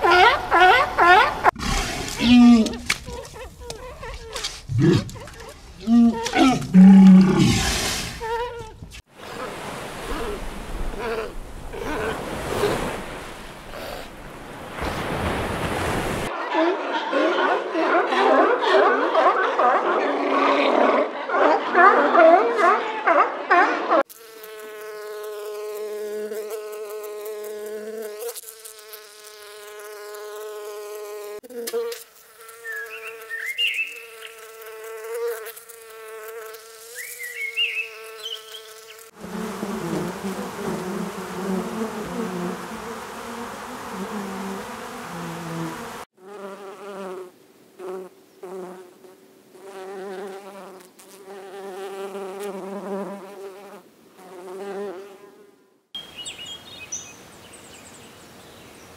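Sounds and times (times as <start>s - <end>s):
single bee buzzing: 0.0s - 9.5s, 24.0s - 49.0s, 49.6s - 55.6s
high insect wing buzz: 1.4s - 14.1s, 24.0s - 55.5s
hum of many honeybees: 24.0s - 49.0s, 49.6s - 58.9s.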